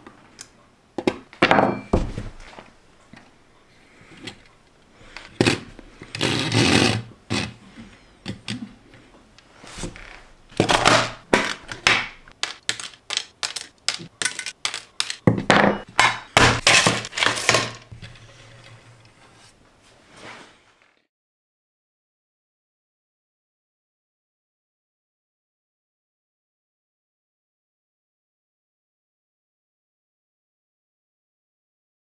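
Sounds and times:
scraping slides on tabletop: 18.0 - 20.8.

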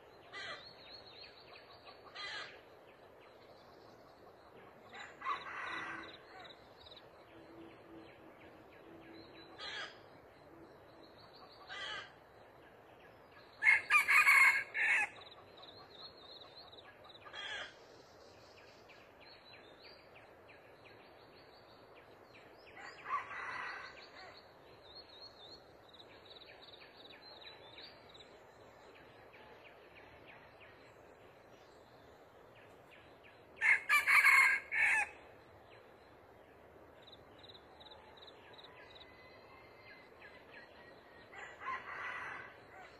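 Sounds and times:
rooster crowing: 5.2 - 6.2, 13.6 - 15.2, 33.6 - 35.2, 41.3 - 42.9.

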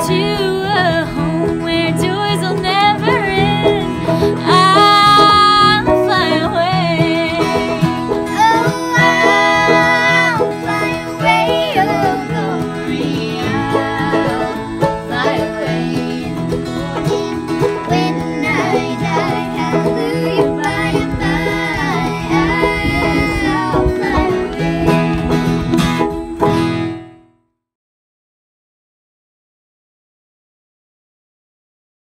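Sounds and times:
fiddle: 0.0 - 26.9
plucked acoustic strings: 0.0 - 27.2
voices singing in harmony: 2.3 - 25.6.

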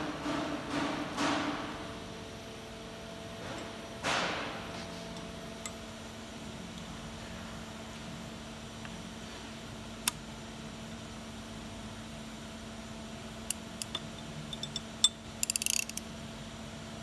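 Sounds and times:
steady low hum: 0.0 - 17.0
wrench and socket ticking: 13.5 - 16.0
ratchet clicking: 13.5 - 16.1
sharp metal click: 13.8 - 16.0.

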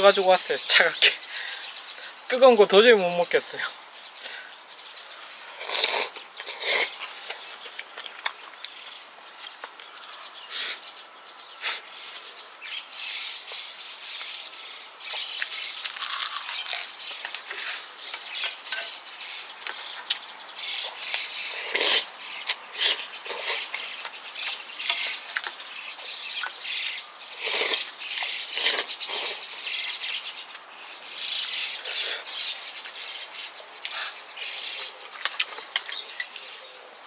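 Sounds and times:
wet chewing: 15.1 - 17.7.

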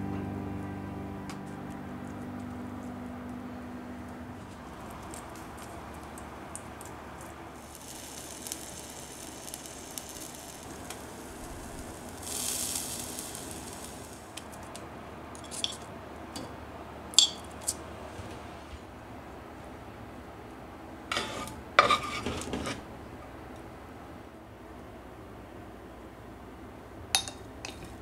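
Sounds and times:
fish sizzling on a grill: 4.5 - 14.4
tongs clinking on metal: 27.2 - 27.9.

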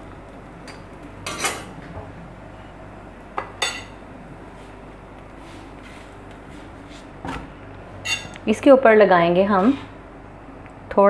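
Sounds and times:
metal kitchenware clinking: 0.7 - 1.7, 8.0 - 8.4.

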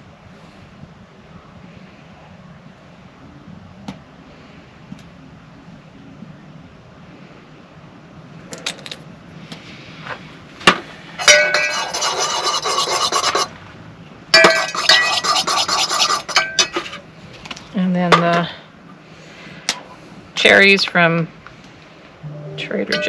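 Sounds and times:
metal spoon clinking in mugs: 11.2 - 11.9.

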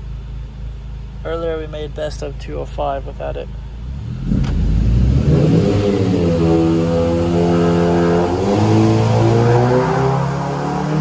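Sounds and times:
car engine revving: 3.8 - 11.0.

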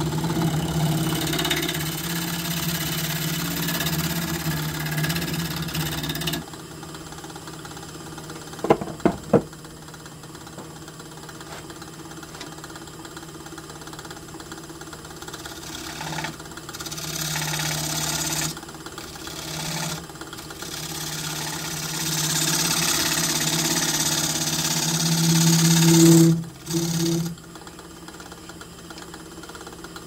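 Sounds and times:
gouge cutting wood with hiss: 0.0 - 6.4, 15.4 - 27.4
wood lathe motor running: 0.0 - 30.0.

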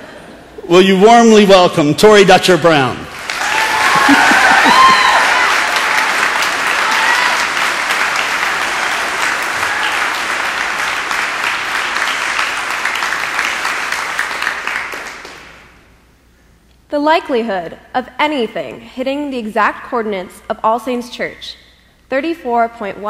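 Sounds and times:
crowd applauding: 3.1 - 15.7.

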